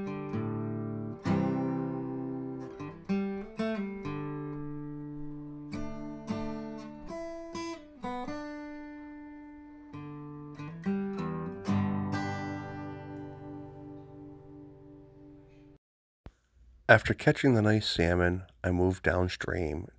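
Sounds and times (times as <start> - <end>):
acoustic guitar music: 0.0 - 15.8.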